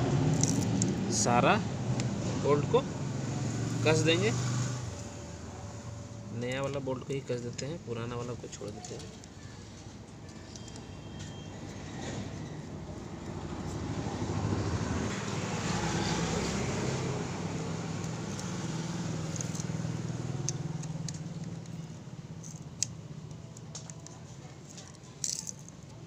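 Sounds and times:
vehicle engine passing: 0:00.0 - 0:07.3, 0:11.6 - 0:22.4
allen key metallic clicks: 0:19.2 - 0:26.0.

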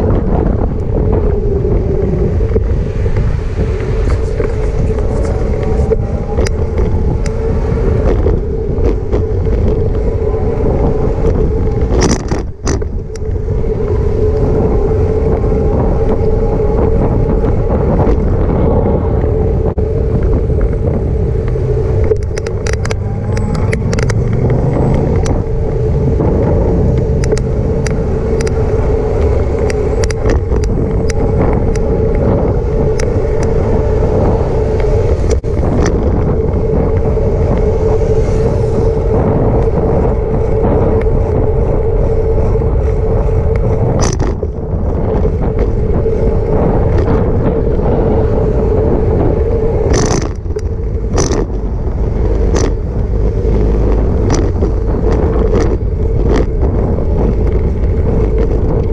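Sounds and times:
bicycle riding rumble: 0:00.0 - 0:58.9
bicycle clicks and rattles: 0:10.9 - 0:13.6, 0:20.1 - 0:58.9.

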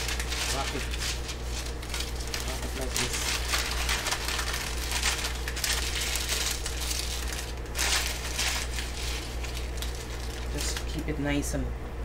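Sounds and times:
food wrap crinkling: 0:00.0 - 0:11.1
low steady hum: 0:00.0 - 0:12.0.

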